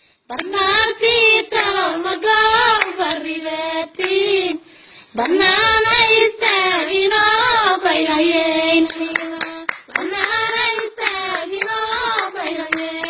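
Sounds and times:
high female voices singing: 0.3 - 13.0
sharp hand claps: 2.7 - 3.0, 8.8 - 13.0.

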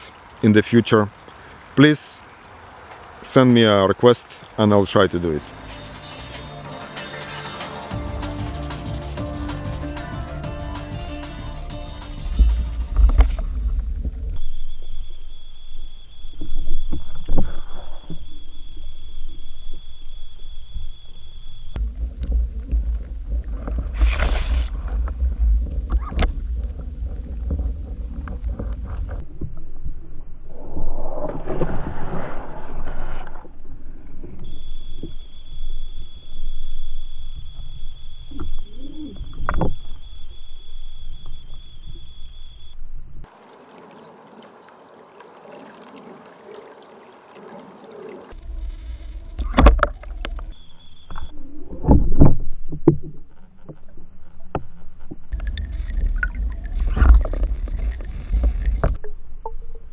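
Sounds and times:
underwater rumble and swishing: 12.2 - 15.4, 16.3 - 59.9.

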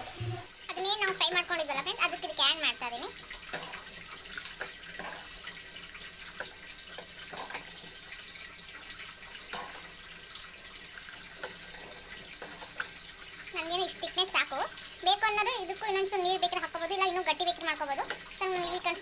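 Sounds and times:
ladle scraping and tapping pot: 3.5 - 5.6, 6.4 - 8.0, 9.4 - 10.0.

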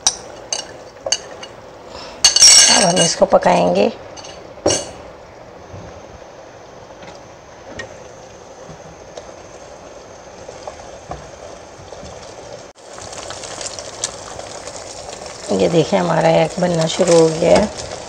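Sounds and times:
eggs sizzling in a pan: 6.7 - 18.0.

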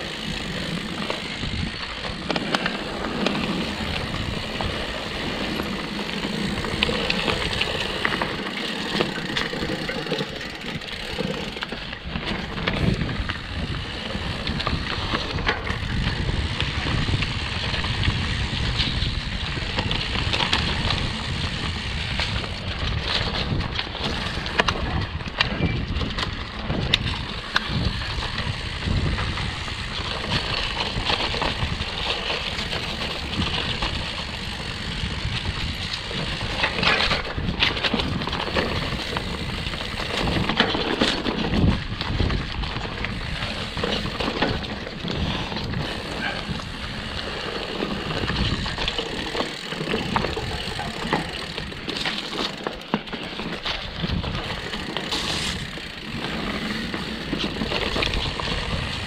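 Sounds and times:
bike knocking and rattling: 0.0 - 59.0
bike tyres rumbling on dirt: 0.0 - 59.0.

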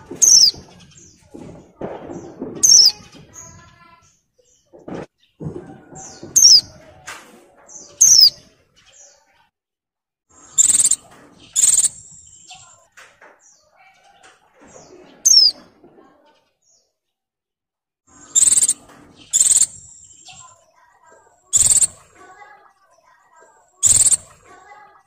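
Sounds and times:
bird calling: 0.0 - 1.0, 10.5 - 12.8, 15.2 - 15.7, 18.2 - 20.6, 21.5 - 22.1, 23.8 - 24.3.

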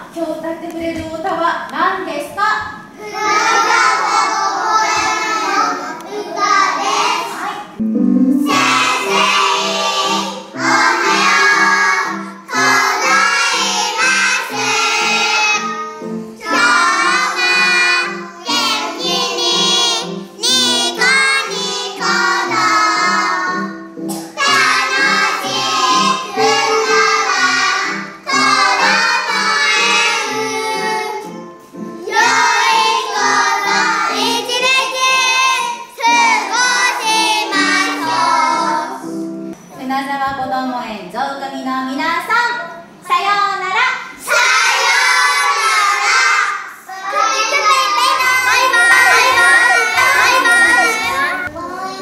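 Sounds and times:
children singing together: 3.0 - 7.8, 8.4 - 39.2, 44.2 - 52.0
instrumental accompaniment with bass: 7.8 - 9.5, 48.7 - 51.5.

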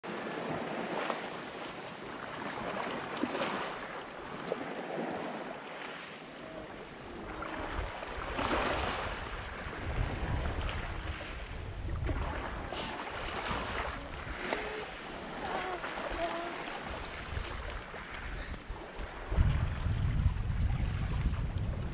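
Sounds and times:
waves washing on rocky shore: 0.1 - 19.8
wind buffeting microphone: 7.0 - 21.9.

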